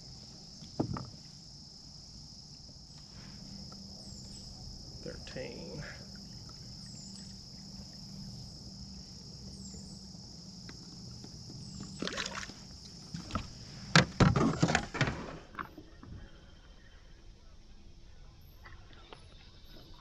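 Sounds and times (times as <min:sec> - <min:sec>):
insects chirring: 0:00.0 - 0:20.0
knocks and clatter of board: 0:00.8 - 0:01.2, 0:13.3 - 0:15.4
water sloshing: 0:06.1 - 0:13.7.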